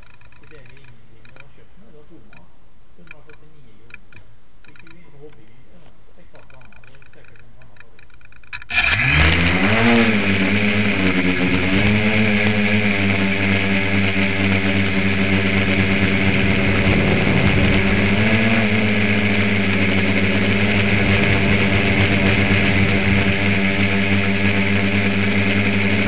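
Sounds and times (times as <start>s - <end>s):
drone motors and propellers buzzing: 8.6s - 26.0s.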